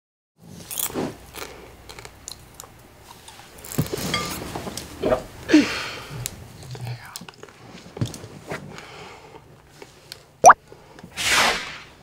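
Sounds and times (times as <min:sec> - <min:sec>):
person chewing popcorn: 0:00.6 - 0:03.9.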